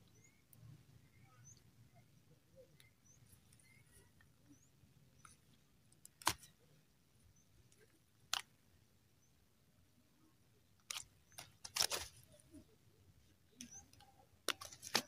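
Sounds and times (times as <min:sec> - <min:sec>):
fishing net clicks and snaps: 0:06.1 - 0:06.5, 0:10.8 - 0:12.2, 0:14.5 - 0:15.0.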